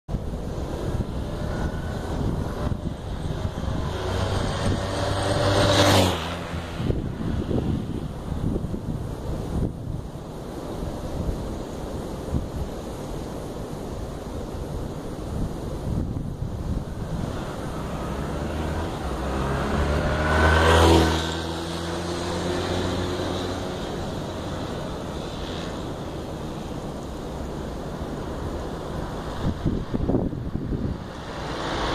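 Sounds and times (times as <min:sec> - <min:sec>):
wind rumble on microphone: 0:00.1 - 0:31.9
motorcycle engine approaching: 0:00.8 - 0:08.4, 0:17.0 - 0:25.7.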